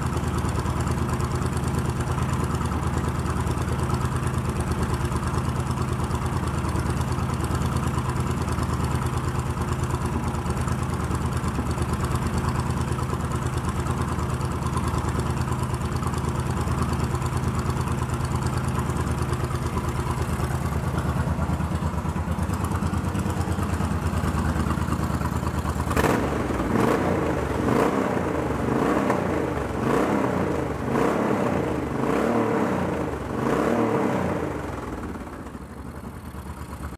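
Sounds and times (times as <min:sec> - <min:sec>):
motorcycle engine idling: 0:00.0 - 0:36.9
engine revving in throttle blips: 0:25.9 - 0:35.2.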